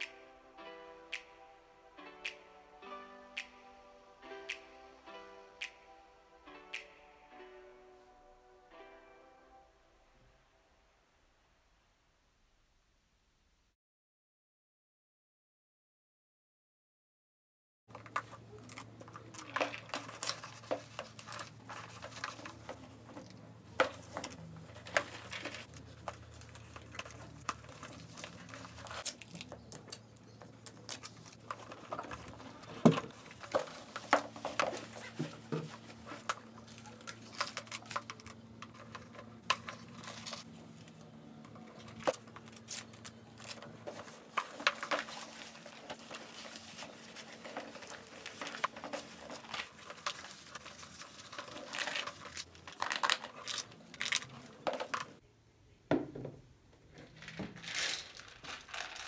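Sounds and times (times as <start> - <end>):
plastic lids and containers clicking: 17.9 - 40.5, 41.5 - 55.2
packaging crinkling: 17.9 - 41.0, 41.7 - 55.2, 57.1 - 59.0.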